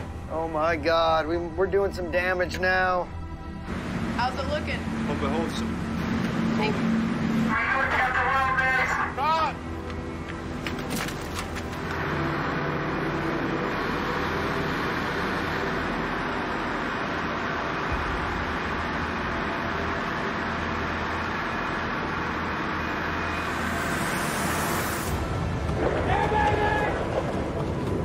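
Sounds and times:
engine room machinery drone: 0.0 - 28.0
low hum: 0.0 - 28.0.

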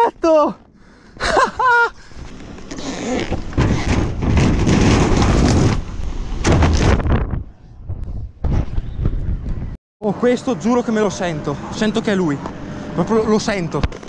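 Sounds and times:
wind buffeting microphone: 3.7 - 9.8.

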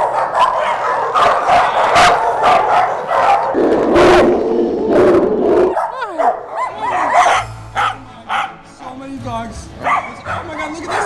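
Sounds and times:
dog yelps: 0.0 - 3.6, 5.7 - 8.6, 9.8 - 11.0
dogs barking: 0.0 - 4.5, 5.5 - 8.7, 9.8 - 11.0.

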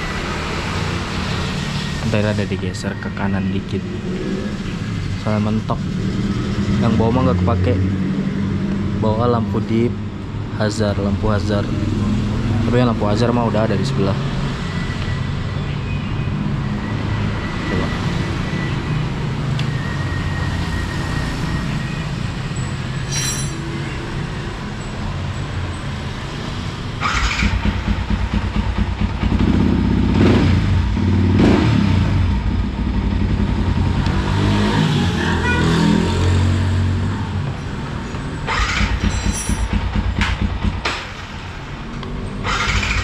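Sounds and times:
engine revving: 3.6 - 8.9, 26.5 - 41.3, 42.0 - 43.0
motorcycle engine idling: 27.4 - 30.2.

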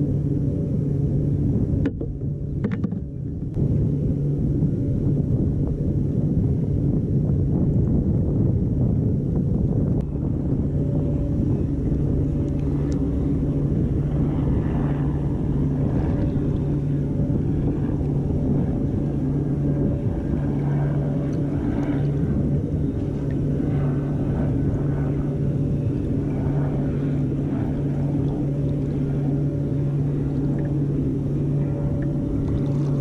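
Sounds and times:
low engine drone: 0.0 - 33.0.

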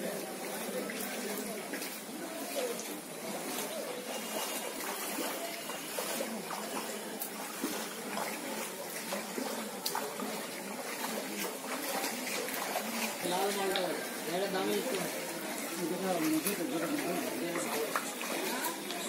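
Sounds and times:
faint voices: 0.0 - 19.0
floodwater washing: 0.0 - 19.0
small water splashes: 0.0 - 19.0.

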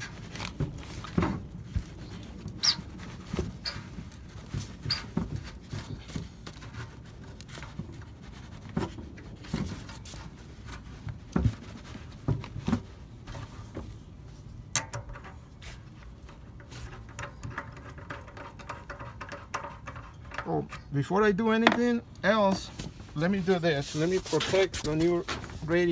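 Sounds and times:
light clicks and knocks of hand work: 14.7 - 20.9.

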